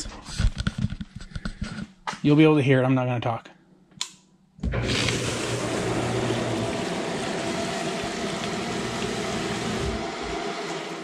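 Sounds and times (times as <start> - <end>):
click: 4.0 - 4.2
sump pump motor hum: 4.6 - 11.0
rushing water: 4.8 - 11.0.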